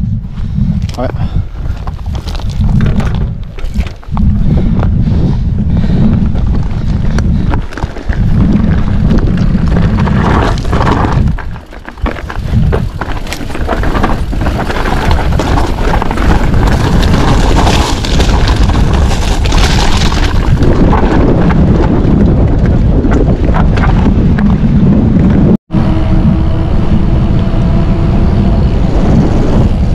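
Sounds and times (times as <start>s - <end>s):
wind buffeting microphone: 0.0s - 29.9s
bike clattering over rocks: 1.7s - 4.1s, 6.2s - 24.5s.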